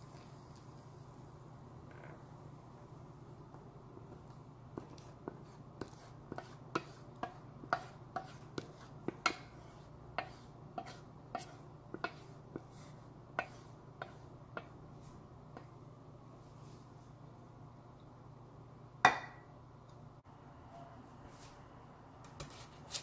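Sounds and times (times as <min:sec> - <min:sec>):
spatula scraping metal pot: 0:04.8 - 0:14.8.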